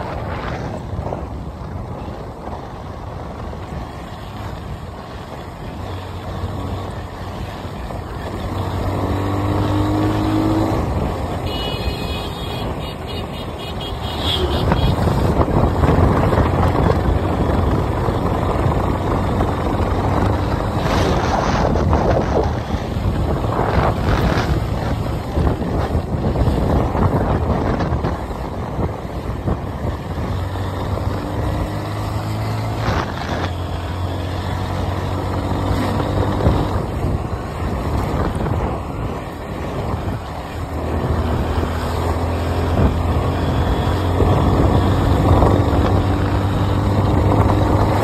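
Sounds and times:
wind on microphone: 0:00.0 - 0:48.0
motorcycle engine: 0:02.0 - 0:48.0.

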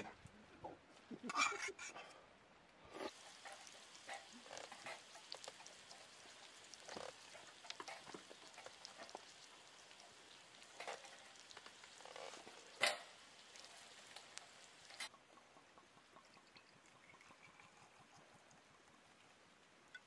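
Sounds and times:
campfire wood crackling and popping: 0:02.9 - 0:15.2
meat sizzling on a grill: 0:03.0 - 0:15.1.

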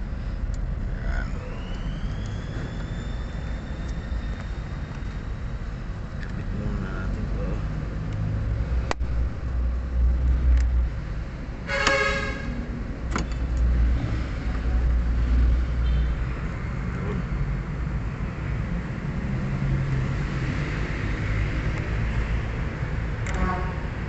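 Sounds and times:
motor vehicle rumble: 0:00.0 - 0:24.0
car horn toot: 0:11.6 - 0:12.6, 0:23.3 - 0:23.9
sharp clicks of hoses: 0:13.1 - 0:13.7.

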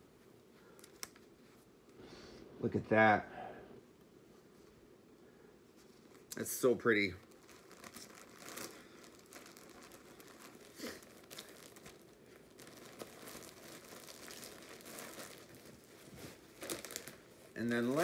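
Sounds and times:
packaging crinkling and rustling: 0:05.8 - 0:18.0.

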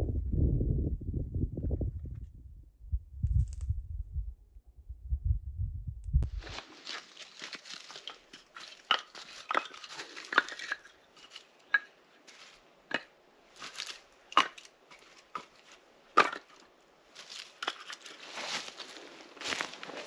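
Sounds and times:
rustling in dry leaves: 0:06.3 - 0:12.7, 0:13.5 - 0:15.8, 0:16.5 - 0:20.0
firewood pieces clacking together: 0:07.6 - 0:18.2.

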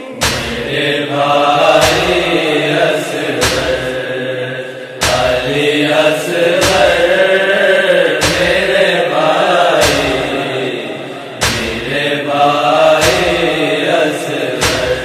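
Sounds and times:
boy chanting a lament: 0:00.0 - 0:15.0
heavy drum beat: 0:00.2 - 0:00.8, 0:01.6 - 0:02.6, 0:03.4 - 0:04.0, 0:05.0 - 0:07.2, 0:08.2 - 0:08.8, 0:09.8 - 0:10.5, 0:11.4 - 0:12.1, 0:13.0 - 0:13.7, 0:14.6 - 0:15.0.

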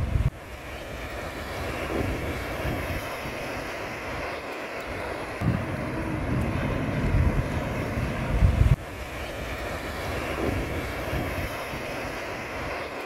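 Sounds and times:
sea and wind rushing: 0:00.0 - 0:13.0
wave breaking: 0:00.0 - 0:13.0.

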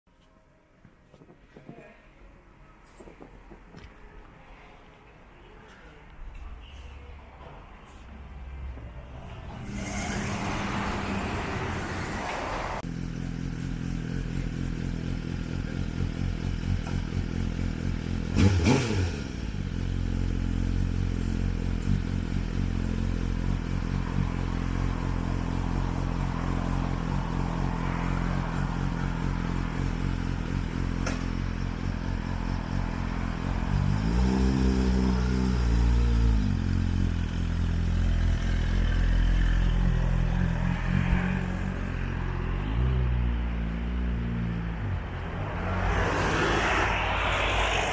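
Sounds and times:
engine revving: 0:09.0 - 0:47.9
motorcycle engine idling: 0:12.9 - 0:18.3.

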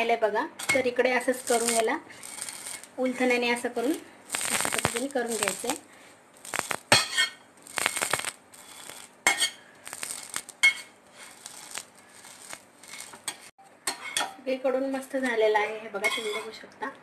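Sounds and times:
metal spatula scraping a griddle: 0:01.3 - 0:03.4, 0:04.3 - 0:05.8, 0:06.4 - 0:14.3, 0:16.0 - 0:16.5.

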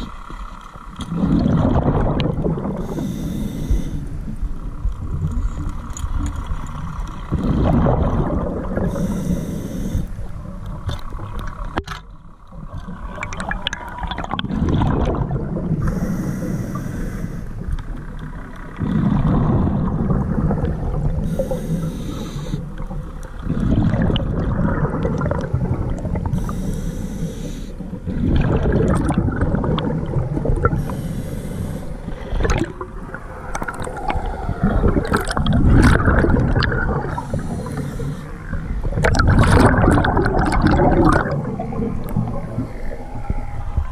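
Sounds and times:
regulator hissing on inhalation: 0:02.8 - 0:04.1, 0:08.9 - 0:10.2, 0:15.8 - 0:17.6, 0:21.2 - 0:22.6, 0:26.4 - 0:27.8, 0:30.8 - 0:32.0, 0:37.2 - 0:38.4
bubbling exhalation: 0:32.3 - 0:37.8, 0:39.0 - 0:42.8.

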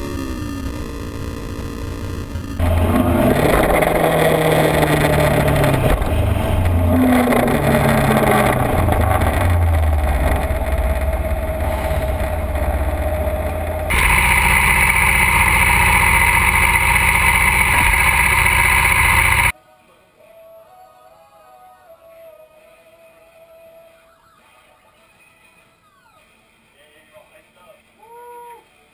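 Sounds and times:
motorcycle engine revving: 0:00.0 - 0:19.5.

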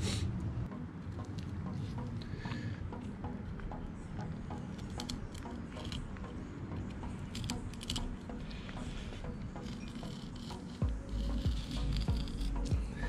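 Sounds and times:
knife clicking and scraping fish: 0:04.8 - 0:06.1, 0:07.3 - 0:08.2, 0:09.6 - 0:12.8.

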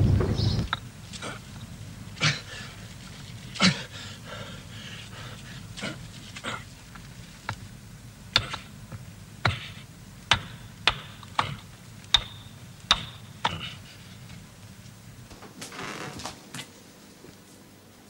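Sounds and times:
hammer striking chisel: 0:08.3 - 0:08.7, 0:09.4 - 0:13.8.

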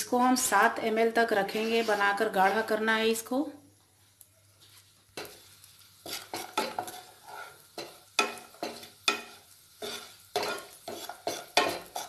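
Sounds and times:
spatula scraping nuts in pan: 0:01.3 - 0:02.7, 0:04.7 - 0:12.0.

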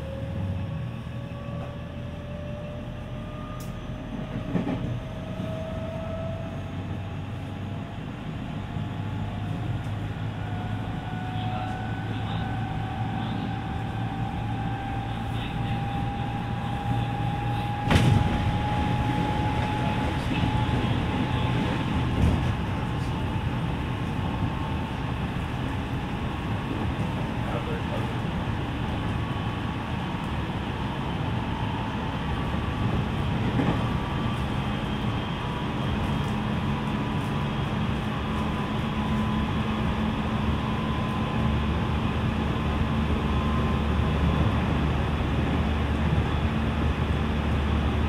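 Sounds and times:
wheels rumbling on rail: 0:00.0 - 0:48.0
electric train motor whine: 0:09.4 - 0:25.5.

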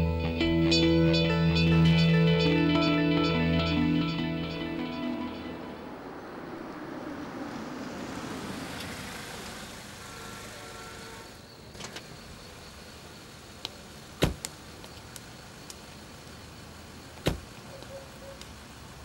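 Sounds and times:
car door thump: 0:14.2 - 0:14.4, 0:17.2 - 0:17.4.

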